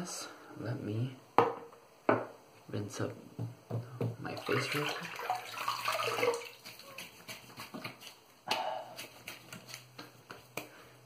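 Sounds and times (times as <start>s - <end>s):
water splashing at sink: 4.2s - 8.2s.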